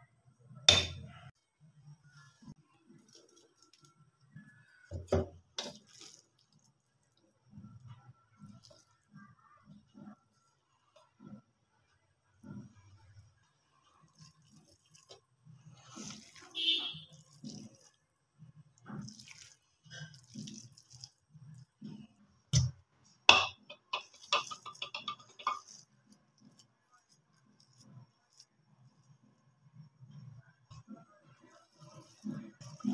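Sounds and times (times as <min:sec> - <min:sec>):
wet squelches: 0:02.9 - 0:11.5, 0:12.6 - 0:23.3, 0:30.7 - 0:32.9
spoon scraping steel jar: 0:23.4 - 0:26.6.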